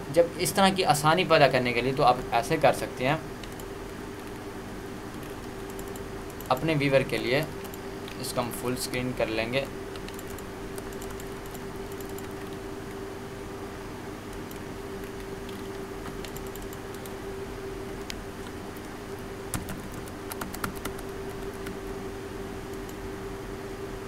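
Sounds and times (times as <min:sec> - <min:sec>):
steady background hum: 0:00.0 - 0:24.0
keyboard and mouse clicks: 0:03.4 - 0:04.4, 0:05.1 - 0:06.8, 0:07.4 - 0:08.3, 0:09.6 - 0:13.0, 0:14.3 - 0:17.2, 0:17.9 - 0:21.8, 0:22.7 - 0:23.0.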